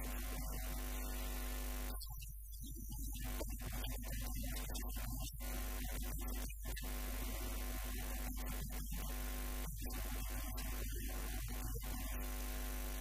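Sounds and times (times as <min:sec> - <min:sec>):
background hiss: 0:00.0 - 0:04.5
electrical mains hum: 0:00.0 - 0:13.0.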